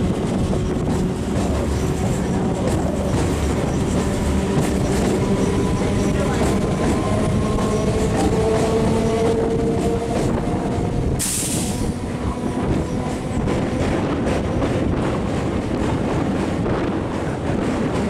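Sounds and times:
train wheels rumbling on rail: 0.0 - 18.0
rush of hiss: 11.2 - 11.9.

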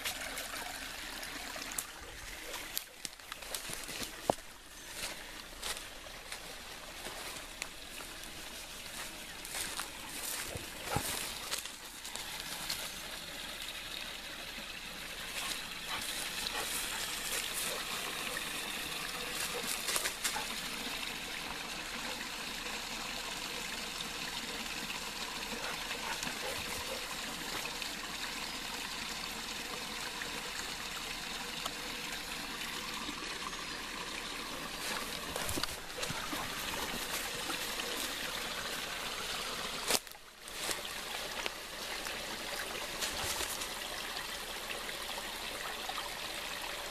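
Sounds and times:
creek trickling over stones: 0.0 - 46.9.

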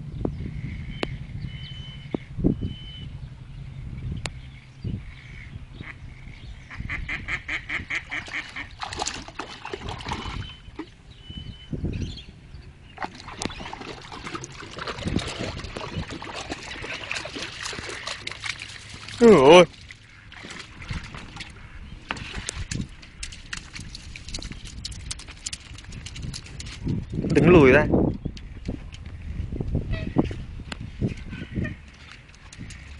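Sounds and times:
wild ducks quacking: 5.0 - 8.8.

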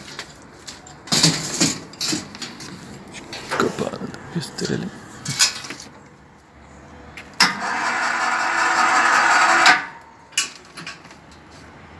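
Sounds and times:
electric winch motor running: 7.4 - 10.0.

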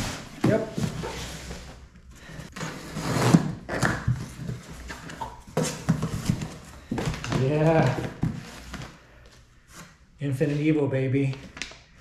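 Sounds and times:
cardboard scraping and rustling: 0.0 - 1.8.

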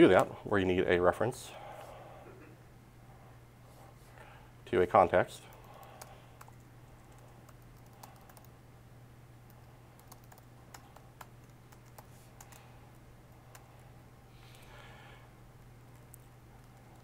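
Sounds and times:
steady low hum: 0.0 - 17.0
laptop keyboard typing: 5.5 - 8.5, 9.5 - 12.7, 13.4 - 13.8, 15.9 - 17.0.

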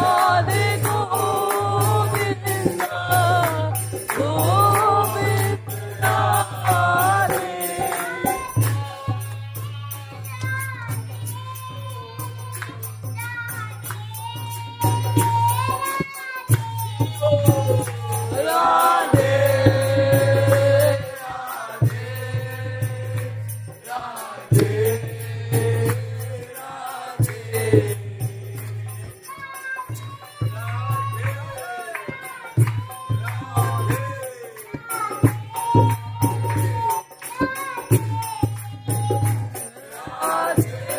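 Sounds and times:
person singing: 0.0 - 10.5
jingling percussion: 0.0 - 40.9.

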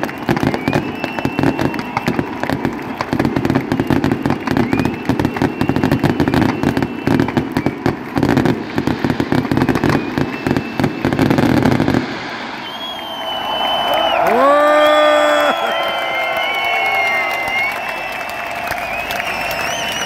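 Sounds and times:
fireworks bangs and crackling: 0.0 - 13.8.

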